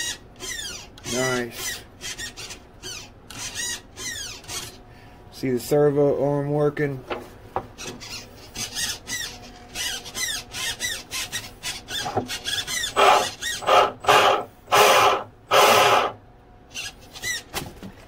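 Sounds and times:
servo whining in bursts: 8.0 - 17.0.

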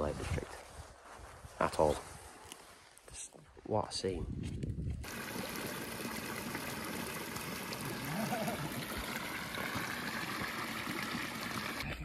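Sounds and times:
stream trickling over stones: 5.0 - 12.0.

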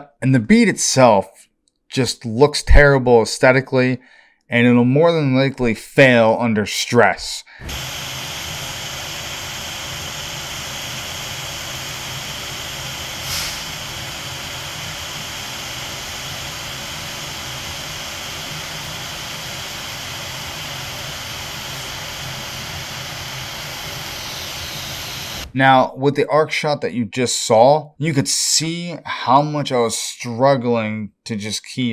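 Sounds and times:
welding arc crackle: 7.6 - 25.6
welding arc hissing: 7.6 - 25.6.

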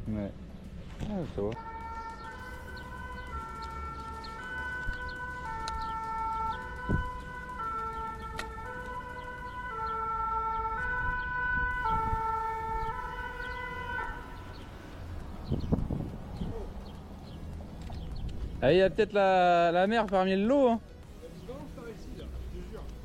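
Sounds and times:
two-tone emergency siren: 1.5 - 14.8.

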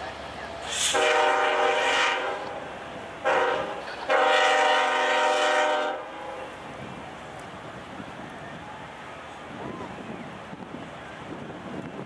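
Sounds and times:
locomotive air horn blasts: 0.7 - 2.6, 3.2 - 6.1.

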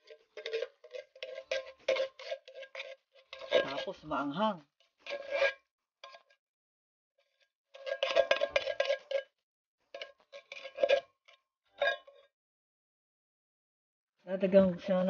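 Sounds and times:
metal can clanging: 0.0 - 4.4, 7.8 - 9.3, 9.9 - 11.1
scraping inside a metal can: 0.0 - 6.4, 7.2 - 12.3.

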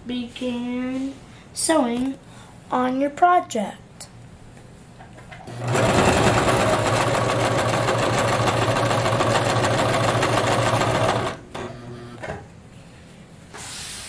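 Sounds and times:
sewing machine stitching: 5.5 - 11.9.

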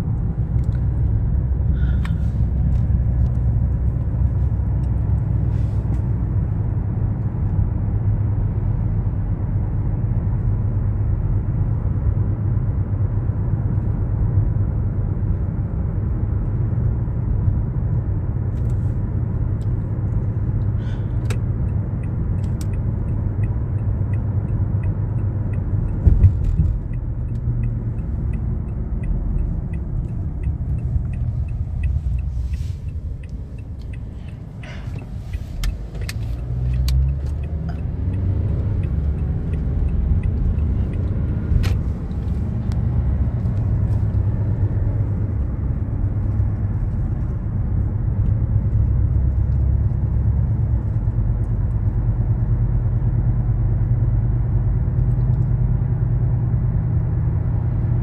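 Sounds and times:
car road and engine rumble: 0.0 - 58.0.

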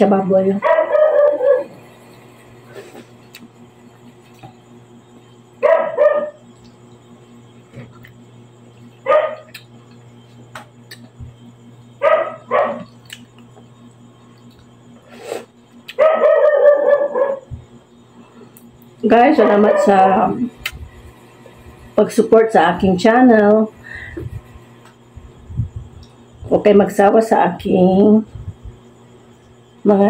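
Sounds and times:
steady low hum: 0.0 - 30.0
dog barking: 0.6 - 1.8, 5.6 - 6.4, 9.0 - 9.5, 12.0 - 12.9, 15.9 - 17.5, 19.4 - 20.0.

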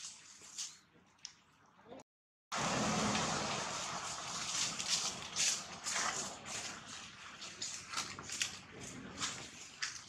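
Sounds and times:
dry leaves crackling and rustling: 2.6 - 10.0.

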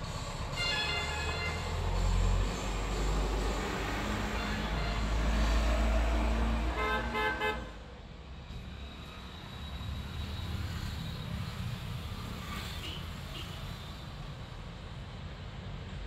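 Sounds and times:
vehicle engine rumble: 0.0 - 9.2.

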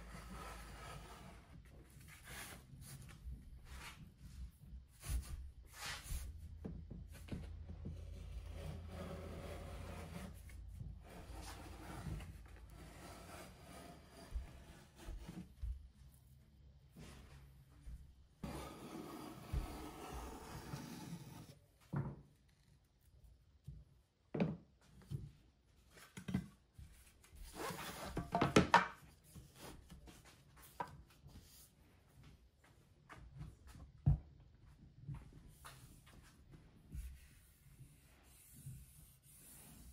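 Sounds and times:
plane shaving wood: 8.0 - 10.4, 11.0 - 15.4
wooden knocks and scrapes: 18.4 - 22.3, 27.9 - 31.0.

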